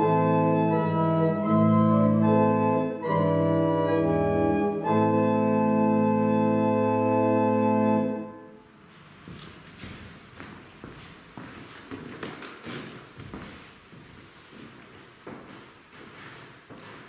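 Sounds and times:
organ playing hymn chords: 0.0 - 8.8.

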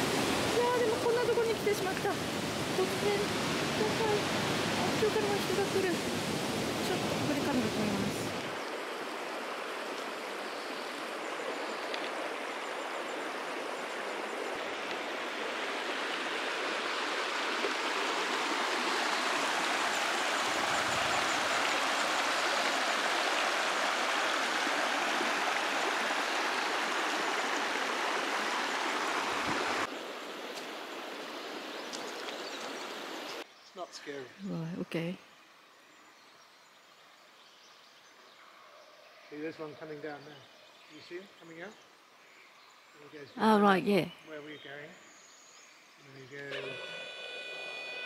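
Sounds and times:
river rushing over pebbles: 0.0 - 30.2.

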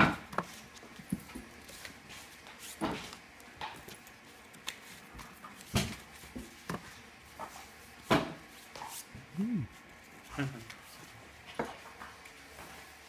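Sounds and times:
paper sheets tapping and slapping: 0.0 - 6.9.

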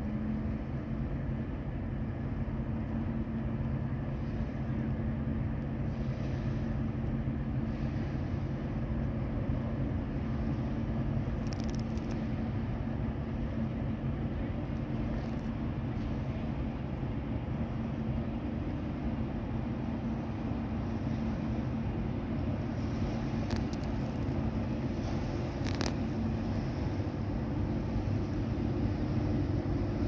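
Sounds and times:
ship diesel engines droning: 0.0 - 30.0
faint crackle: 11.3 - 12.3, 23.4 - 26.2.

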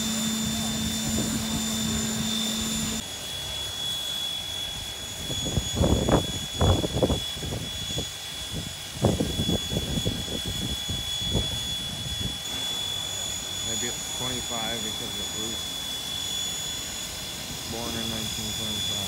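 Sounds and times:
steam hissing: 0.0 - 3.1, 7.7 - 19.0
high-pitched whine: 0.0 - 19.0.

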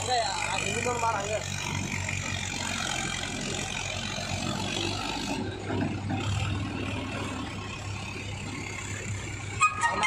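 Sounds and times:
tractor diesel engine humming: 0.0 - 10.0.

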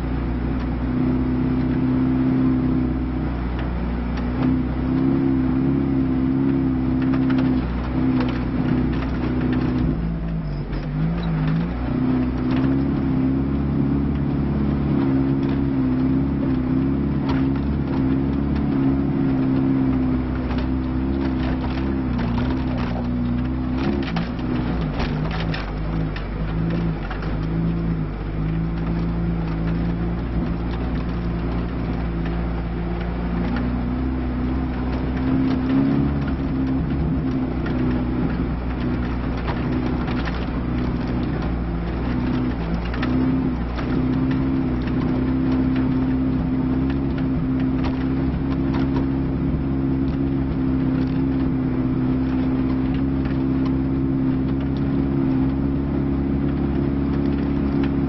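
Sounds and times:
car engine pulling: 0.0 - 58.0
car body knocks and rattles: 15.0 - 51.6.

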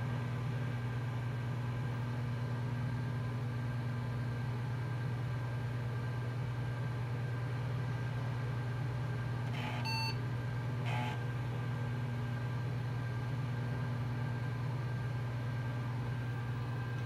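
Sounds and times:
computer fan hum: 0.0 - 17.0
short computer beep: 9.7 - 10.2.

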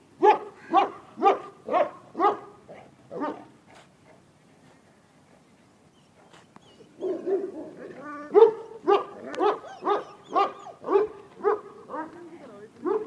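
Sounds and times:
dog barking: 0.2 - 3.5, 7.0 - 12.2.

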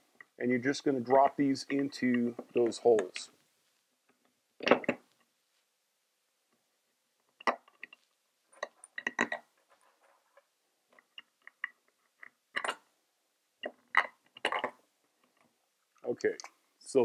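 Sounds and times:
bolts clicking and knocking: 4.1 - 5.3, 7.2 - 12.9.

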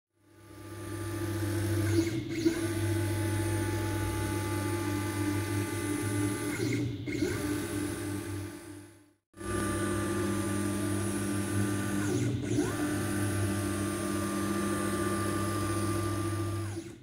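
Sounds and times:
stepper motors humming and whining: 9.4 - 17.0.

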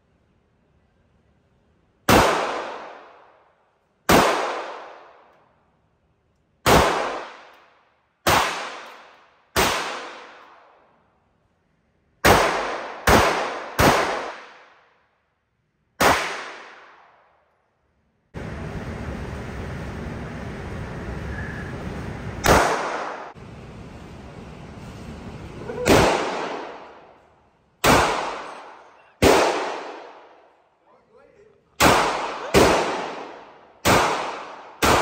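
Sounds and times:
handgun shots: 6.6 - 10.5, 12.2 - 14.8, 16.0 - 17.1, 22.4 - 23.3.

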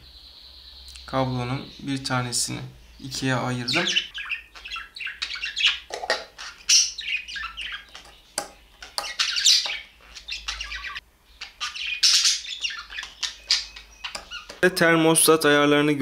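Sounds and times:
birds chirping and squawking: 0.0 - 15.6.

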